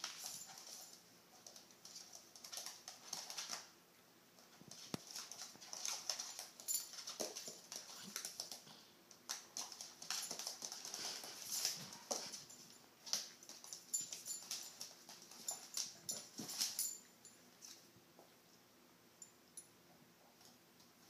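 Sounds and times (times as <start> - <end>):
animals scuffling and snuffling: 0.0 - 3.7, 4.4 - 17.0.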